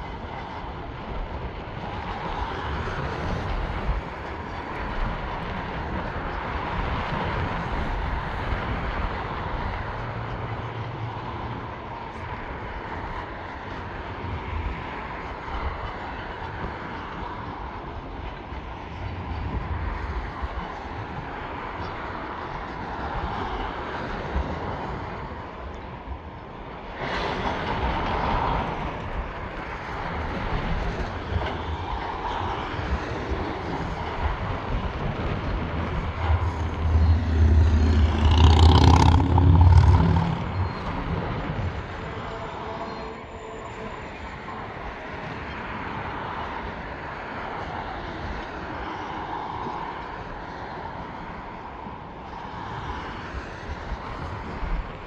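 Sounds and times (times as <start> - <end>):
road traffic passing: 30.9 - 51.3
diesel engine drone: 34.0 - 44.6.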